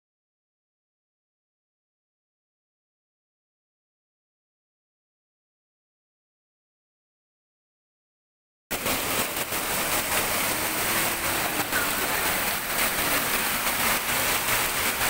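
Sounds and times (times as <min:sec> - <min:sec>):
floodwater rushing past rocks: 0:08.7 - 0:15.0.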